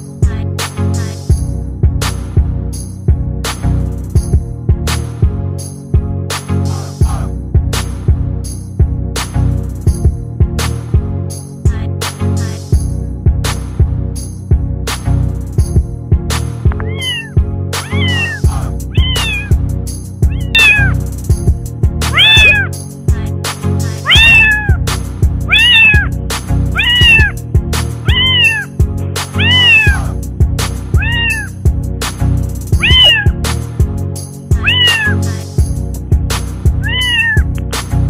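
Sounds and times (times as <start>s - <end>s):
background music with steady beat: 0.0s - 38.0s
cat meowing: 16.8s - 19.6s, 20.3s - 21.0s, 22.1s - 22.7s, 24.0s - 24.8s, 25.5s - 26.1s, 26.7s - 27.4s, 28.0s - 28.8s, 29.4s - 30.2s, 31.0s - 31.6s, 32.8s - 33.4s, 34.5s - 35.4s, 36.8s - 37.5s.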